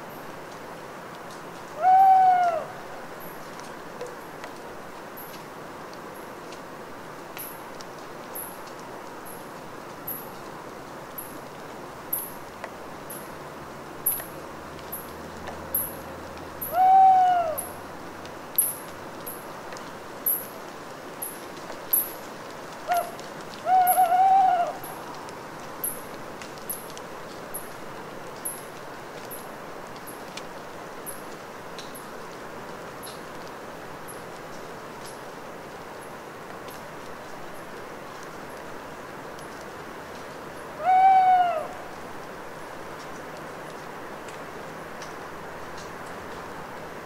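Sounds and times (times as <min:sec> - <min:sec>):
rainwater dripping from branches: 0:00.0 - 0:40.9, 0:41.5 - 0:47.0
owl calling: 0:01.8 - 0:02.9, 0:16.6 - 0:17.8, 0:22.9 - 0:24.9, 0:40.8 - 0:41.9.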